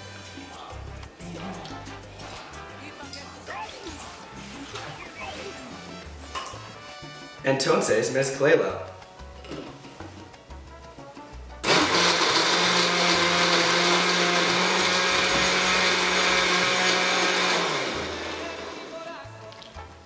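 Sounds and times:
blender running: 11.6s - 19.0s.

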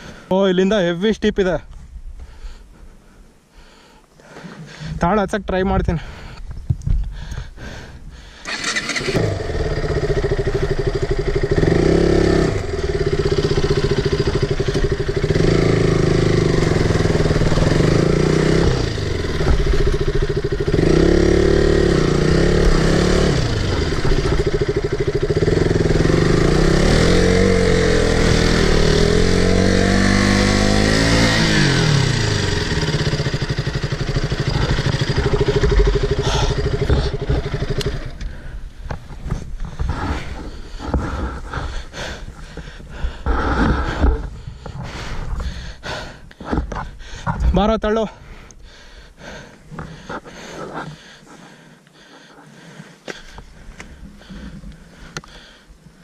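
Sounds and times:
motorcycle engine revving: 8.4s - 46.9s.

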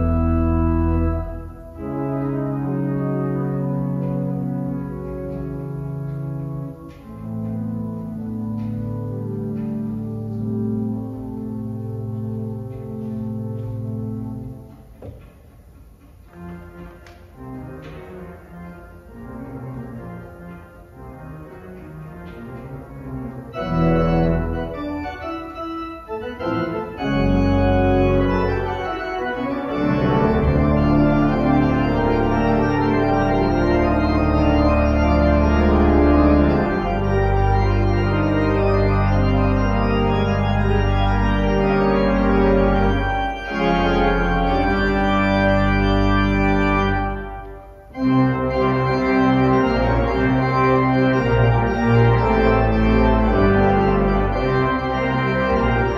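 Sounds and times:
church organ playing: 0.0s - 55.9s.

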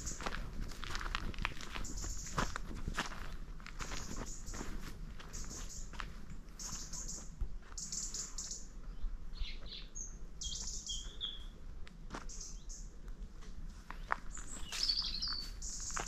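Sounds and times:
small birds chirping and singing: 0.0s - 0.5s, 1.7s - 2.6s, 3.8s - 11.6s, 12.3s - 12.9s, 13.9s - 16.0s
soft footsteps on path: 0.0s - 16.0s.

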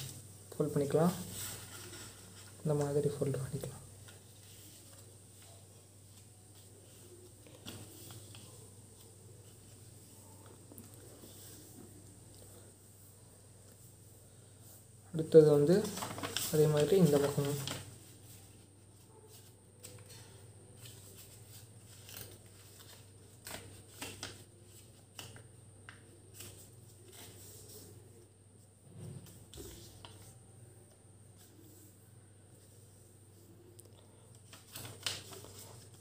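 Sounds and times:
paper rustling and scraping on table: 0.8s - 12.4s, 15.7s - 28.1s, 34.4s - 36.0s.

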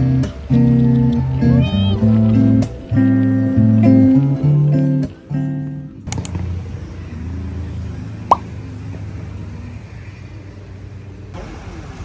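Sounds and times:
acoustic guitar music: 0.0s - 6.1s
outdoor ambience rumble: 0.0s - 12.0s.

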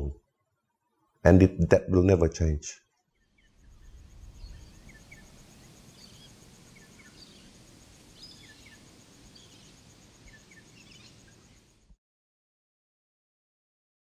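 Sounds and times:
birds chirping: 3.4s - 11.8s.

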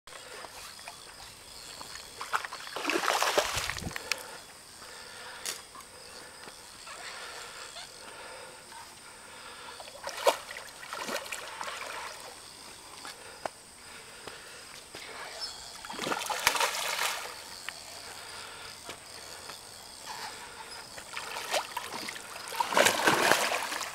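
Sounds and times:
fish splashing in water: 2.2s - 3.8s, 15.8s - 17.5s, 21.0s - 23.9s.

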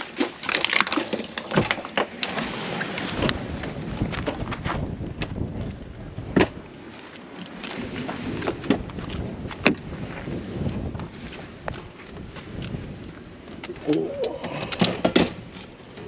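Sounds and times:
wind buffeting microphone: 2.6s - 6.9s, 7.7s - 16.0s.

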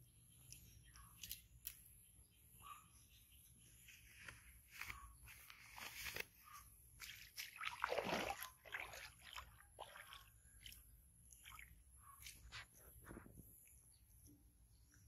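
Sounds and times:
leaves rustling: 4.0s - 6.6s.

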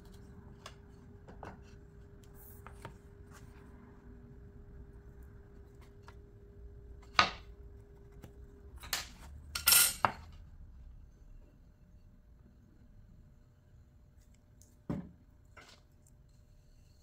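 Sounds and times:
metal ruler clattering and scraping: 8.8s - 10.3s.

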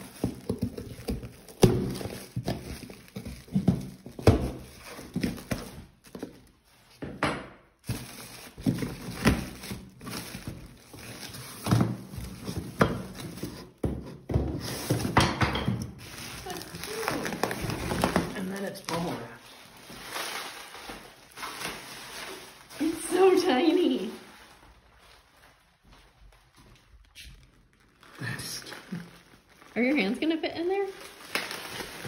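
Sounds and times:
foam and cardboard breaking: 0.0s - 6.4s, 7.8s - 19.4s
knocks and thuds of unpacking: 0.0s - 25.2s, 30.9s - 32.0s.

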